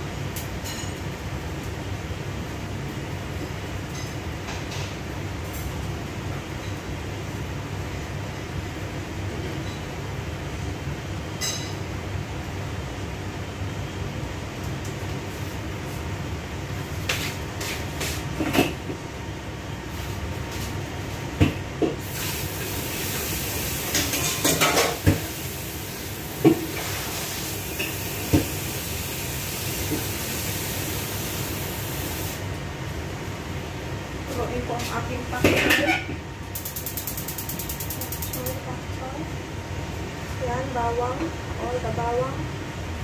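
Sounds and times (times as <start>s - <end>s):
dishes and utensils clinking: 23.9s - 25.2s.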